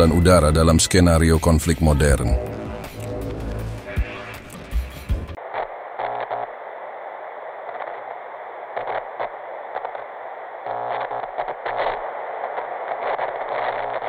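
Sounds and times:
glitchy crackles: 0.3s - 14.0s
television static hiss: 3.2s - 14.0s.

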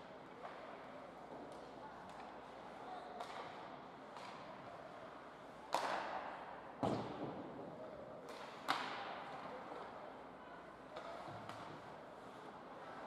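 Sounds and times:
hockey puck and stick cracks: 5.7s - 6.2s, 8.3s - 9.4s.

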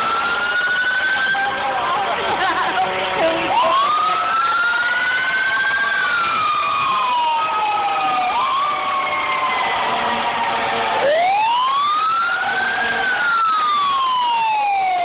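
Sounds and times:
fire truck siren wailing: 0.0s - 15.0s.

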